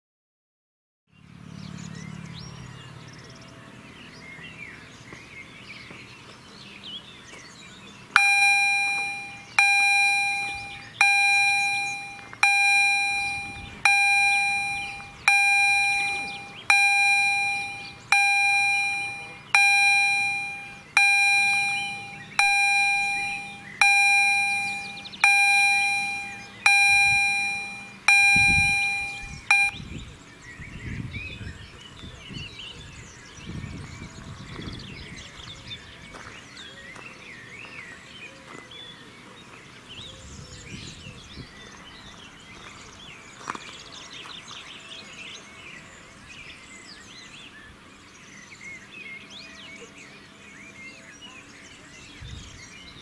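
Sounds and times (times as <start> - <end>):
birds chirping faintly: 4.4 - 29.8
level crossing warning bell: 8.2 - 29.8.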